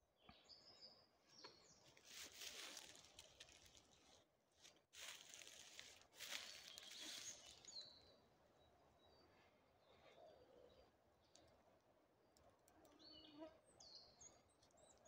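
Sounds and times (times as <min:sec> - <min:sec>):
rustling noise: 0:02.0 - 0:03.8.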